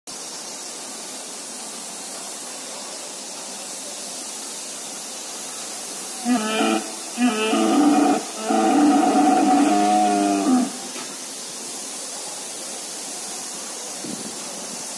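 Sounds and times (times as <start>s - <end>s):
steady hiss: 0.1s - 14.9s
dinosaur roar sound effect: 6.2s - 10.9s.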